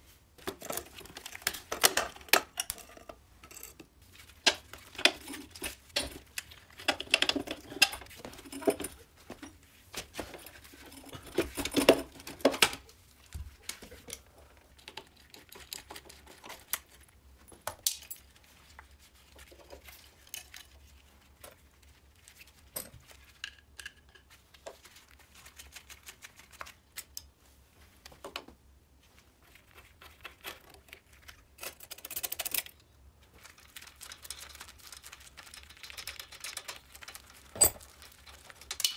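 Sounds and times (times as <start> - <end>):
rustling: 0.0 - 23.5, 24.2 - 38.9
metal parts clinking: 37.6 - 37.9.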